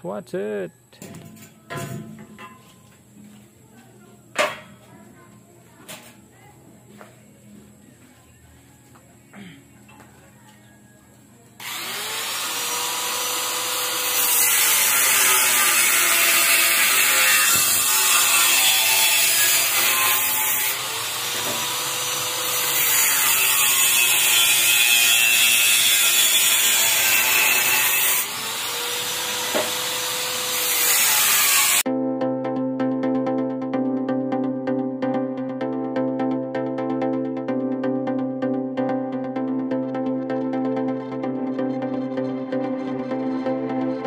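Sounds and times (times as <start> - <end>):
angle grinder cutting steel: 11.6 - 31.9.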